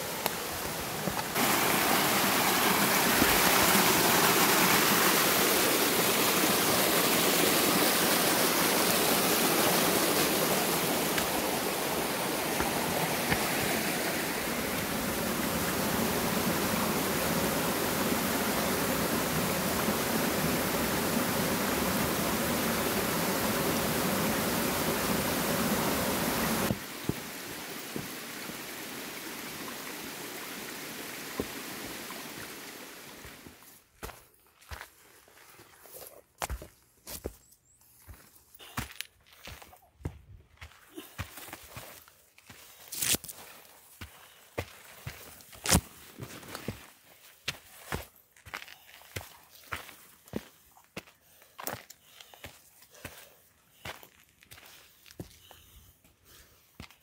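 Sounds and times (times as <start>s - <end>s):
stream rushing over rocks: 0.0s - 33.6s.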